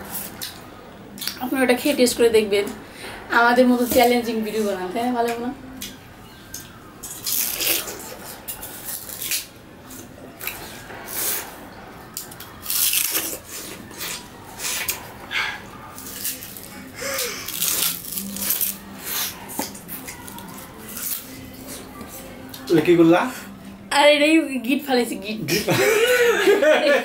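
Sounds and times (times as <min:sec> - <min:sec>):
sugar cane crunching bites: 0:05.8 - 0:09.5, 0:12.2 - 0:14.2, 0:16.0 - 0:21.3.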